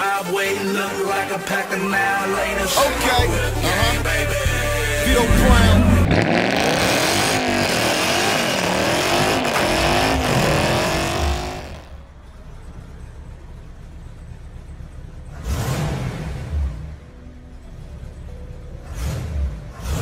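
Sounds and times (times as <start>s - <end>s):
car engine revving: 2.4s - 18.1s, 18.7s - 20.0s
tire spinning: 3.0s - 18.1s.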